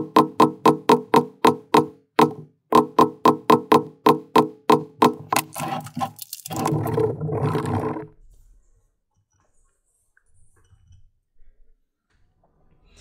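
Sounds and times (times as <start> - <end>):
mallet striking metal stamping tool: 0.0 - 5.5.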